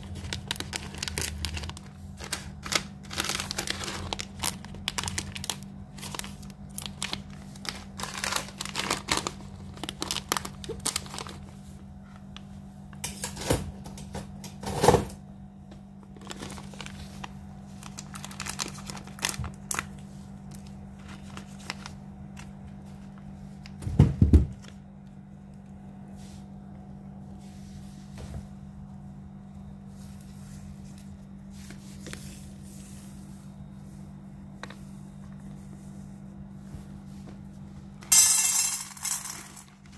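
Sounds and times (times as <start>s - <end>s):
foil sachets crinkling and tearing: 0.0s - 11.6s, 16.1s - 23.3s
steady low hum: 0.0s - 39.9s.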